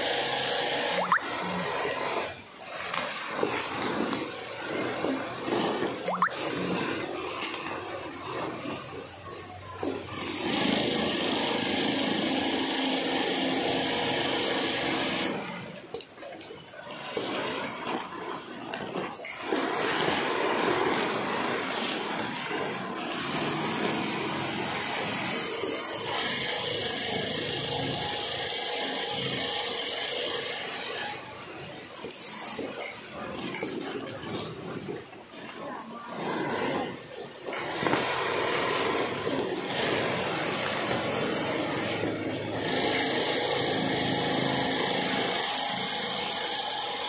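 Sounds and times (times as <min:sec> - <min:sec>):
sewing machine running: 0:10.1 - 0:15.8, 0:16.9 - 0:31.8, 0:36.1 - 0:47.0.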